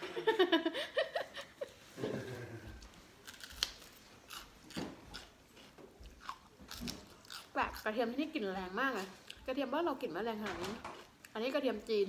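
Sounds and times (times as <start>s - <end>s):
crunchy chewing: 2.7s - 7.9s.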